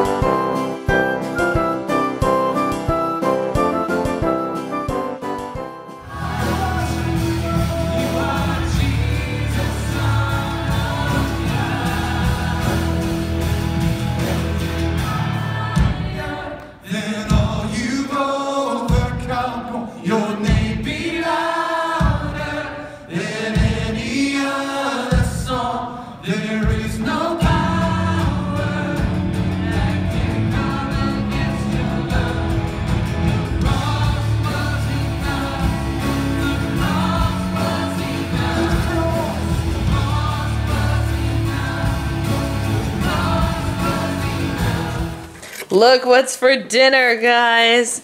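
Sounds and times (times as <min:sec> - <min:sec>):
acoustic guitar: 0:00.0 - 0:16.4, 0:26.7 - 0:46.0
worship band playing: 0:00.0 - 0:47.9
people singing: 0:06.0 - 0:45.6.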